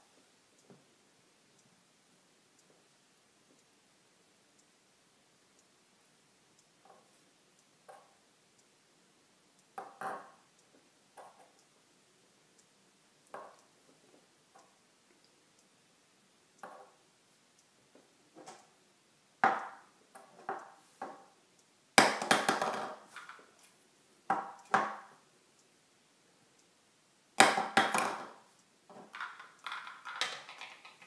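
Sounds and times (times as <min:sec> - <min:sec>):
small hard objects clattering: 0:29.1 - 0:31.0.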